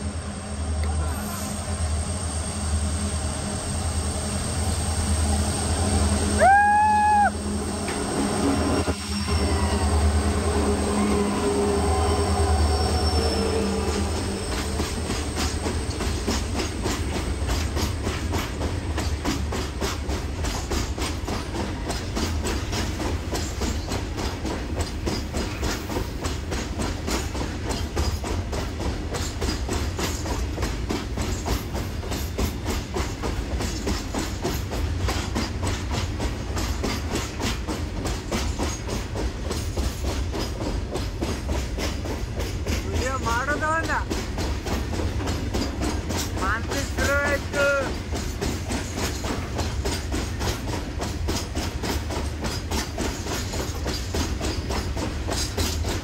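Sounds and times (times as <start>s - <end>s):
locomotive rumbling: 0.0s - 56.0s
train horn blast: 4.8s - 14.9s.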